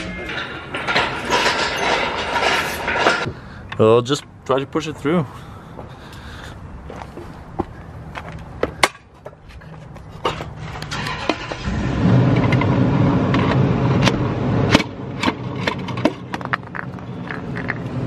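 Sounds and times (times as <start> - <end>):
metal knocks and scrapes: 0.0 - 3.4, 8.6 - 11.6, 13.3 - 18.0.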